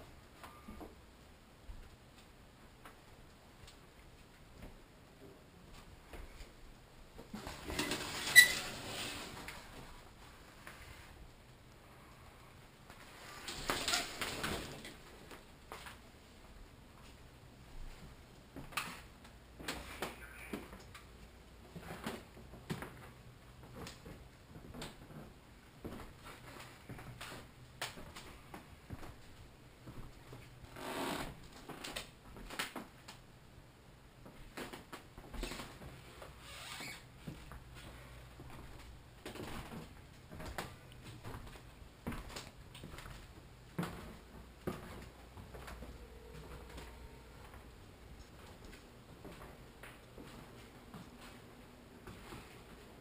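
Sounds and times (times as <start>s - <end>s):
footsteps on hardwood floor: 21.7s - 32.5s, 37.2s - 52.6s
low steady hum: 37.1s - 53.0s.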